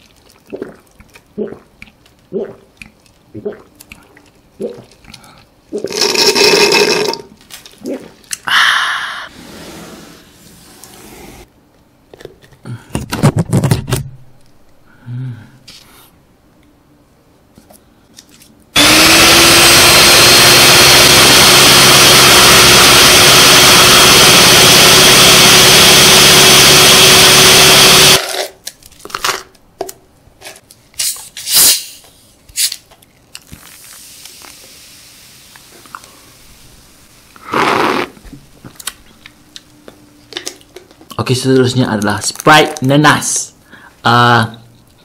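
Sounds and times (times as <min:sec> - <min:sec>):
soda fizzing: 0:00.0 - 0:03.7, 0:05.7 - 0:07.3, 0:33.5 - 0:38.2
electric mixer whine: 0:18.8 - 0:28.2.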